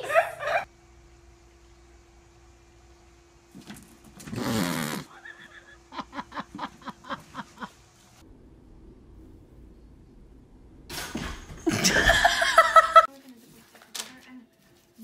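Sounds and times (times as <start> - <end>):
person laughing: 0.0 - 0.7, 4.5 - 7.9, 11.6 - 13.1.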